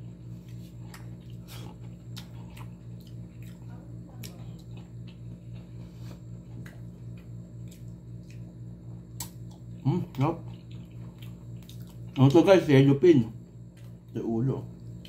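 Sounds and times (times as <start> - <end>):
pulsing low hum: 0.0 - 15.0
chewing and lip smacks: 0.4 - 5.8, 6.4 - 12.3.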